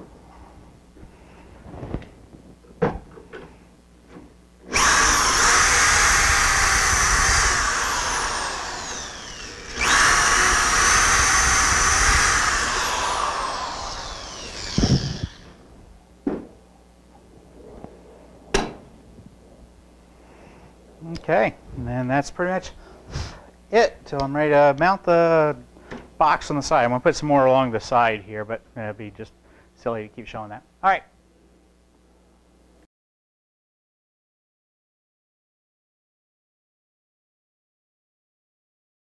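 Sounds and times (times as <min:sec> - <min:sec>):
power drill whining: 0:04.7 - 0:15.6.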